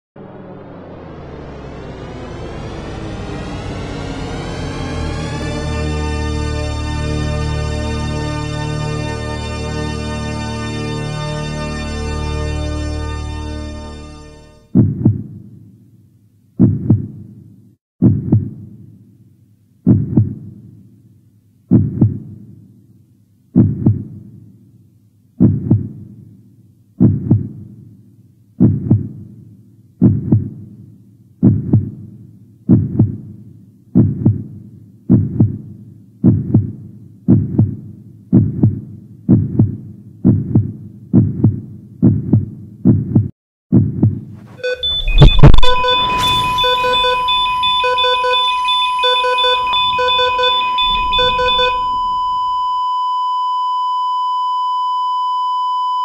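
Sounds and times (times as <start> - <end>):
loud crash: 0.2 - 5.8, 44.4 - 52.8
flatline tone: 0.2 - 7.0, 44.4 - 54.6
heartbeat thumps: 14.7 - 15.4, 16.6 - 17.2, 18.0 - 18.6, 19.8 - 20.5, 21.7 - 22.4, 23.6 - 24.2, 25.4 - 26.0, 27.0 - 27.6, 28.6 - 29.2, 30.0 - 30.6, 31.4 - 32.0, 32.7 - 33.3, 34.0 - 52.7
electronic beeps: 44.5 - 54.0.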